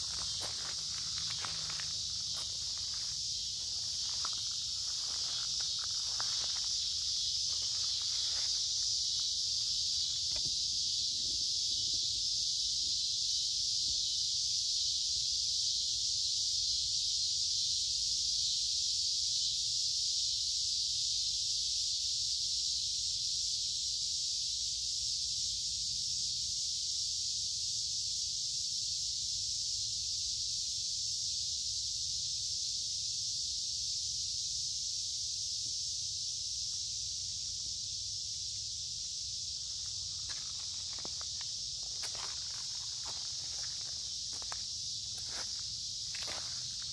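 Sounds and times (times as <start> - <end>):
cicadas buzzing: 0.0 - 46.9.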